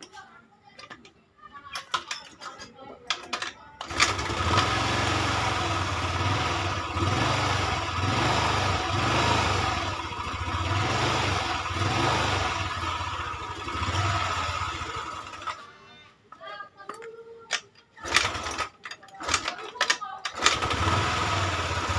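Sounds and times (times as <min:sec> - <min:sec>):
scooter engine revving: 0:03.8 - 0:15.7, 0:18.0 - 0:19.5, 0:20.3 - 0:21.9.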